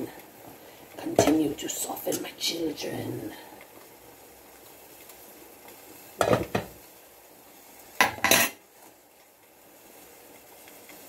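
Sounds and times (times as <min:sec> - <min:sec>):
cookware clatter: 0:06.2 - 0:06.8, 0:08.0 - 0:08.6.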